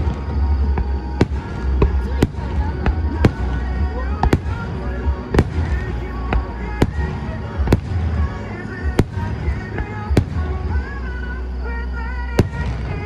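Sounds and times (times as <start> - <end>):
music: 0.0 - 13.0.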